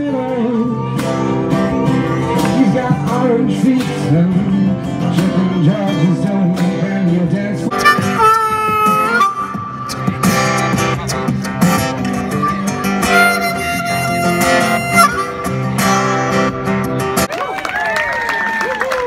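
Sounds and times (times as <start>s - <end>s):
acoustic guitars strumming: 0.0s - 17.3s
harmonica melody: 7.7s - 17.0s.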